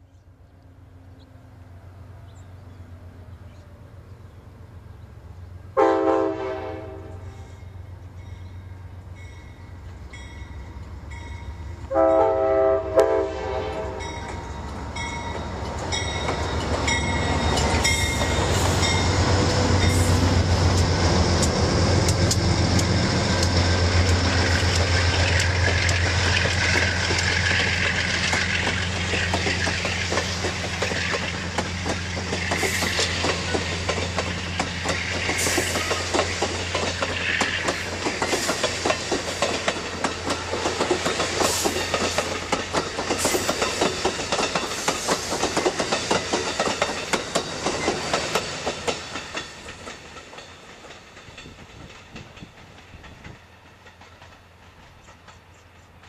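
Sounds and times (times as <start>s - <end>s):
locomotive diesel engines: 0.0s - 56.0s
train air horn blast: 5.8s - 7.8s, 11.9s - 14.2s
train wheels clacking on rails: 13.9s - 56.0s.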